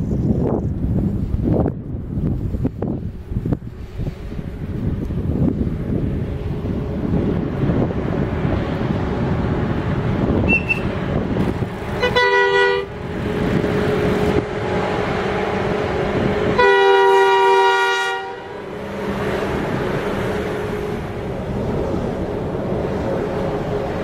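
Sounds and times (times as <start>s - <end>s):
diesel locomotive engines rumbling: 0.0s - 24.0s
locomotive two-note horn: 12.0s - 12.9s, 16.6s - 18.6s.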